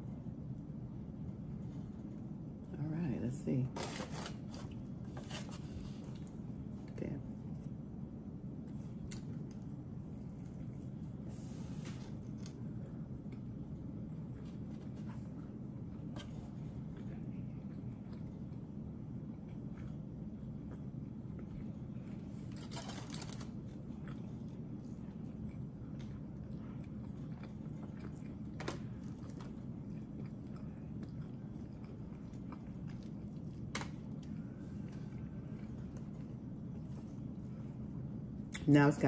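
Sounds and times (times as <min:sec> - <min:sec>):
steady low hum: 0:00.0 - 0:39.0
faint chewing: 0:08.6 - 0:38.7.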